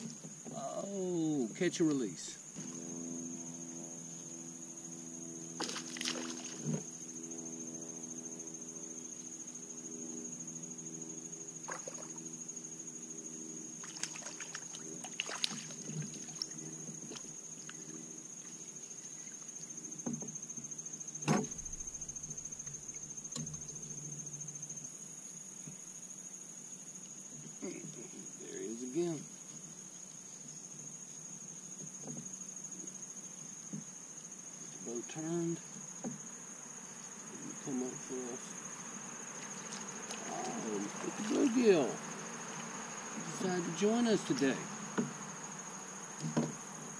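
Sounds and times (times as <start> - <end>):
insects buzzing: 0.0 - 46.9
splash in water: 5.6 - 6.8, 11.6 - 12.2, 13.8 - 16.6
short knocks: 46.2 - 46.6.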